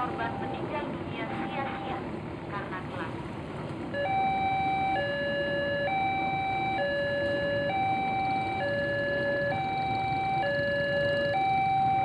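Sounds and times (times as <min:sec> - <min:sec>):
level crossing two-tone alarm: 0:00.0 - 0:02.0, 0:03.9 - 0:12.0.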